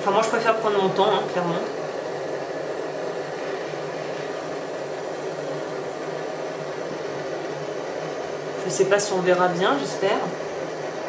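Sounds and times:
gas torch hissing: 0.0s - 11.0s.

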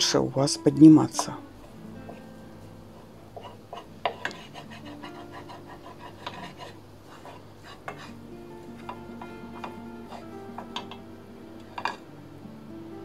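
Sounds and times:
background music: 0.0s - 13.0s
wooden spoon scraping a steel pan: 3.0s - 8.2s.

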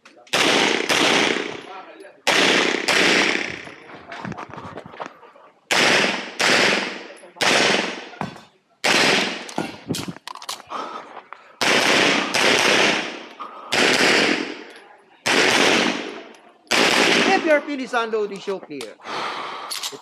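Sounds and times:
pistol shots echoing: 0.3s - 3.8s, 5.7s - 8.2s, 8.8s - 9.7s, 11.6s - 17.9s.

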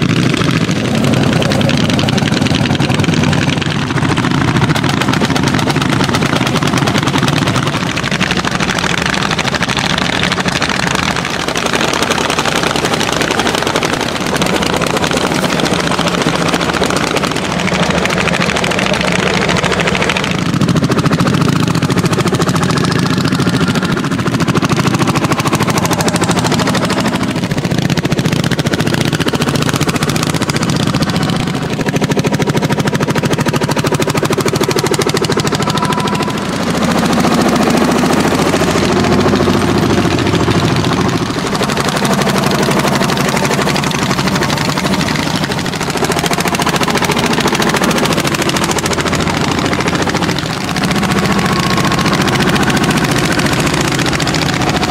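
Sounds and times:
tractor engines thudding under load: 0.0s - 54.9s.

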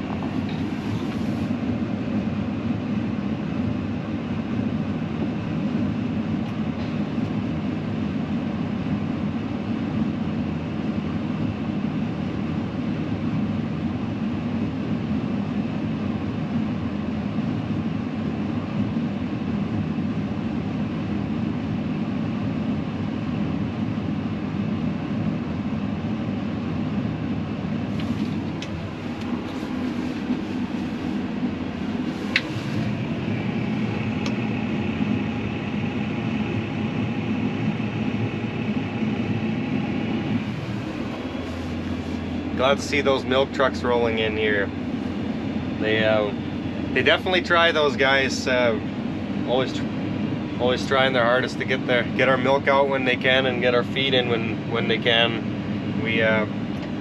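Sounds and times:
tractor diesel engine running: 0.0s - 12.8s, 27.3s - 57.0s.

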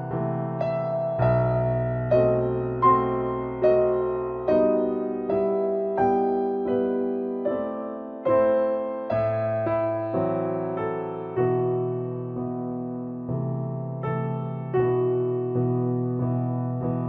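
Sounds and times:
slow gentle piano: 0.0s - 17.0s.

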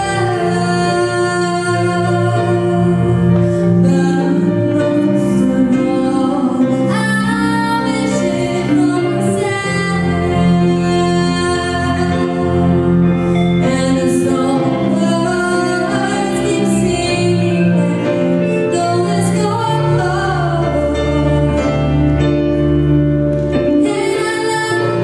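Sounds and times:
woman singing into a microphone: 0.0s - 22.6s, 23.6s - 25.0s.

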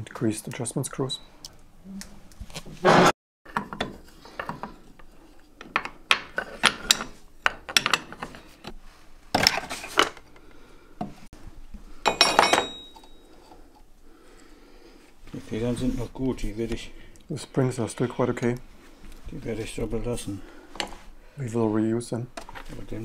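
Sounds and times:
metal tools clinking and scraping: 3.7s - 8.5s, 12.0s - 13.6s.

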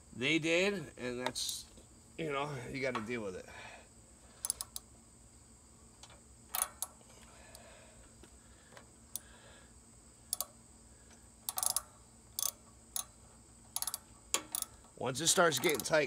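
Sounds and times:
ratchet wrench clicking: 4.4s - 4.9s, 6.0s - 7.0s, 10.3s - 10.6s, 11.4s - 16.0s.

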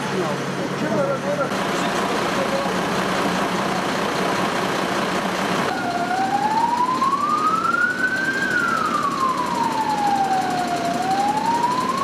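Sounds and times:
emergency siren wailing: 5.6s - 12.0s.

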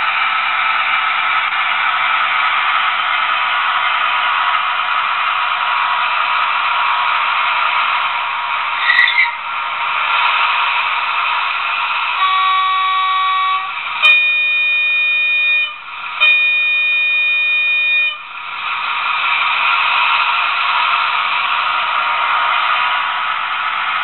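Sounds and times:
model diesel engine sound: 0.0s - 24.0s
locomotive horn blasts: 12.2s - 18.3s.

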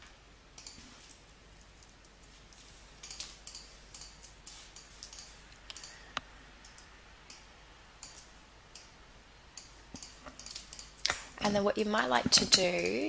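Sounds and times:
computer mouse and keyboard clicking: 0.6s - 1.2s, 1.8s - 8.9s, 9.6s - 11.2s.

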